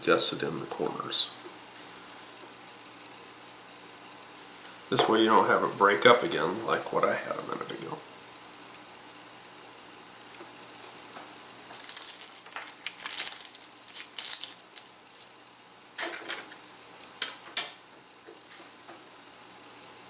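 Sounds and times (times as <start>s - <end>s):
wood sticks clicking and tapping: 11.7s - 15.3s, 17.2s - 19.0s.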